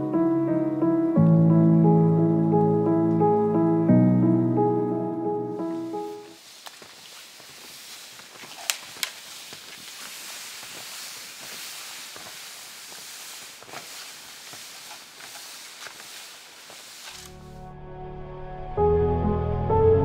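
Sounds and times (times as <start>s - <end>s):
sled sliding on snow: 5.6s - 17.6s
steady high hiss: 5.6s - 17.6s
snowshoe steps crunching snow: 5.7s - 17.6s
sharp clicks: 8.6s - 9.2s.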